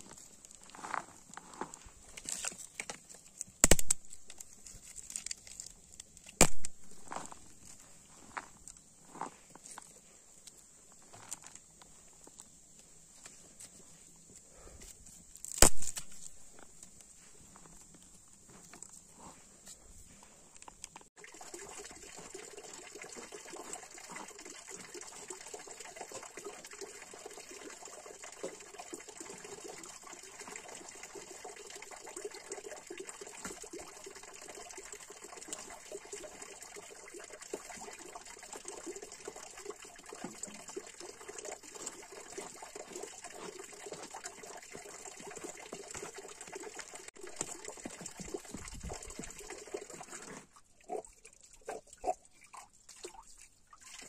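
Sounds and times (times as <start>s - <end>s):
fountain water running into trough: 21.2s - 54.0s.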